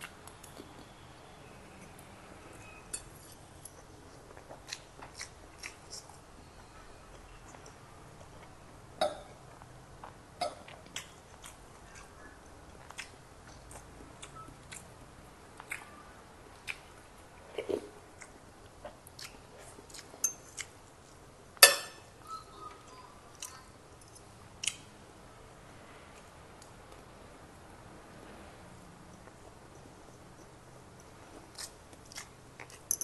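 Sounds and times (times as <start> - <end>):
person chewing: 1.8 - 8.6, 9.5 - 15.0, 15.6 - 21.2, 31.3 - 33.0.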